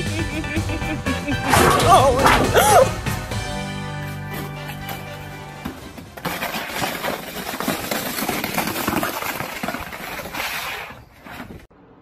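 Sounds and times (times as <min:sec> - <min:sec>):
plastic saucer scraping over ice: 0:06.2 - 0:11.7.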